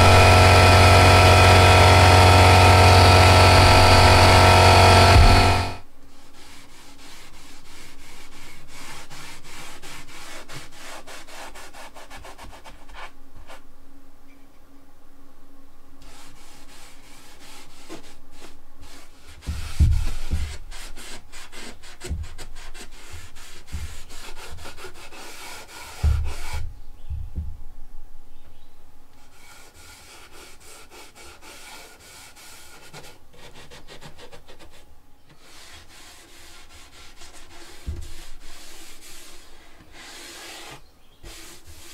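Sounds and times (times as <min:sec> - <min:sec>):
heavy low thumps: 0:00.0 - 0:05.8, 0:26.1 - 0:28.3
rubbing on wood: 0:00.0 - 0:13.6, 0:16.0 - 0:27.2, 0:29.1 - 0:41.9.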